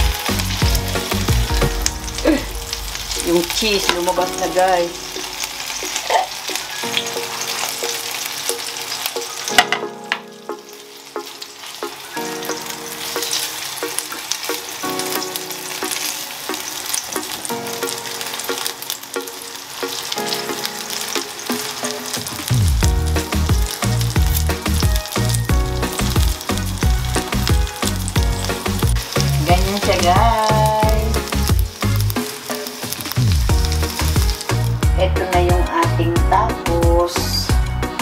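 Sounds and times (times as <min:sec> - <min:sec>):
background music with low beat: 0:00.0 - 0:05.6, 0:21.6 - 0:38.0
food sizzling in a pan: 0:00.0 - 0:38.0.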